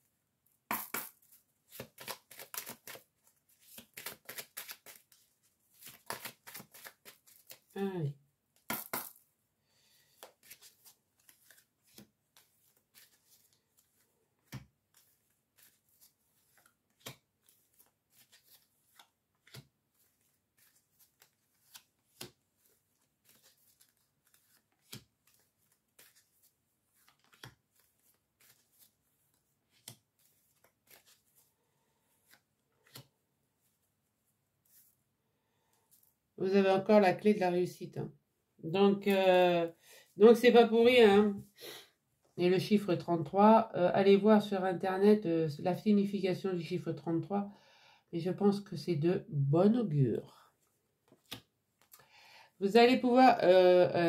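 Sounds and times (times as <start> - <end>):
card deck snapping: 0.7 - 1.2, 8.6 - 9.2
cards being shuffled: 0.7 - 7.7, 8.6 - 9.2, 10.0 - 31.5, 32.1 - 33.1, 51.1 - 52.0.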